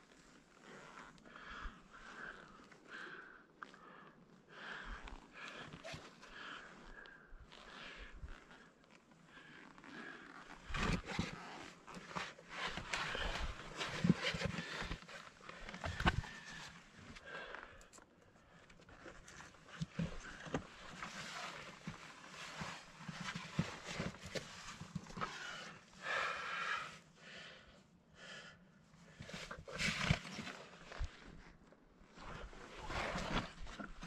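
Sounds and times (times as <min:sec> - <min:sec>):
person breathing: 0:01.3 - 0:08.7, 0:25.1 - 0:31.2
boots and hands scraping rock: 0:32.4 - 0:34.0.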